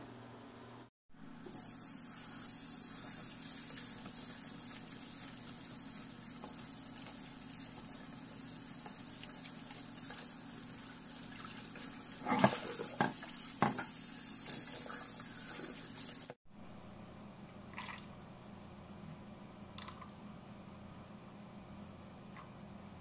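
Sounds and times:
vegetables rubbed and rinsed: 0:01.5 - 0:16.4.

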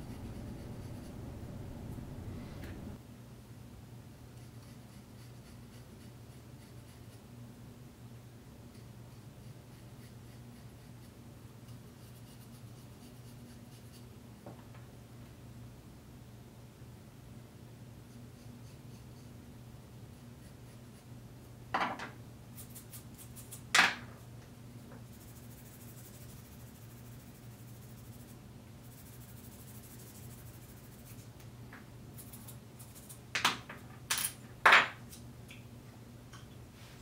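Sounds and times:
low hum: 0:00.0 - 0:03.0.

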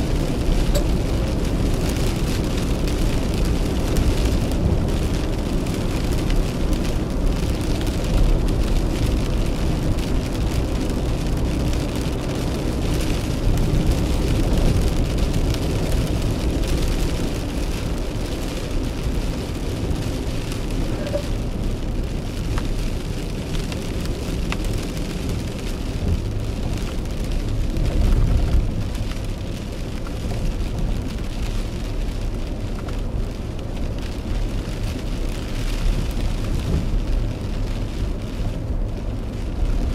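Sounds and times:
car driving on wet road: 0:00.0 - 0:39.9
rain on car windshield and roof: 0:00.0 - 0:39.9.

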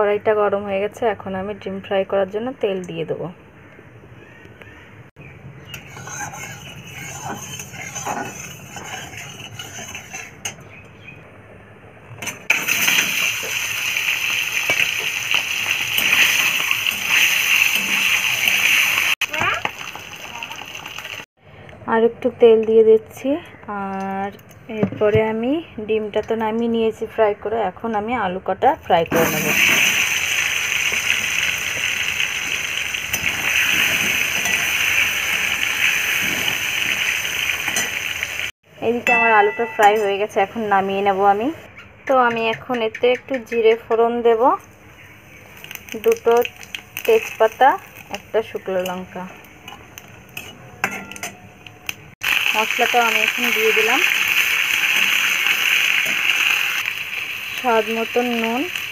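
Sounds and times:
hot oil sizzling and spattering: 0:05.7 - 0:10.5, 0:12.2 - 0:21.3, 0:29.1 - 0:38.6, 0:45.2 - 0:58.9
metal spatula clinking: 0:05.7 - 0:10.7, 0:39.0 - 0:40.3, 0:49.7 - 0:51.5.

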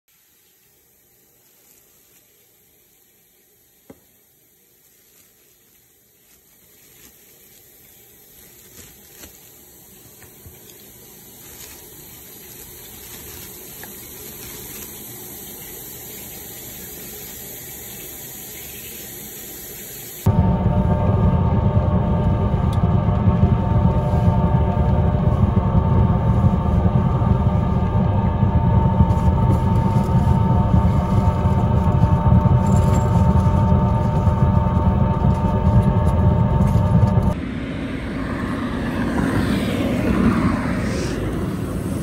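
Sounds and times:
steady high hiss: 0:00.1 - 0:20.3
loud deep sound: 0:20.3 - 0:42.0.

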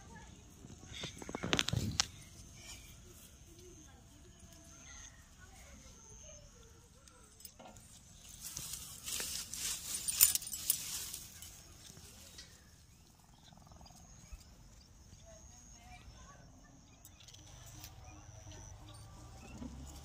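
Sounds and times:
plant leaves rustling and crackling: 0:00.0 - 0:07.0, 0:07.8 - 0:13.0.

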